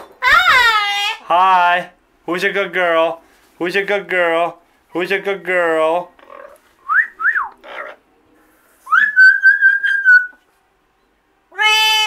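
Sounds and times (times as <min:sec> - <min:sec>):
parrot whistling: 0:06.8 - 0:07.6, 0:08.9 - 0:10.4.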